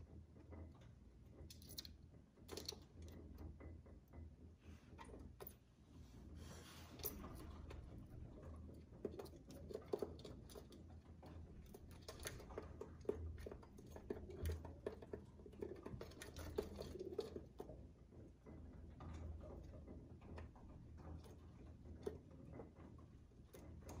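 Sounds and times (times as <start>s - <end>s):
pigeons pecking and pattering: 6.9s - 24.0s.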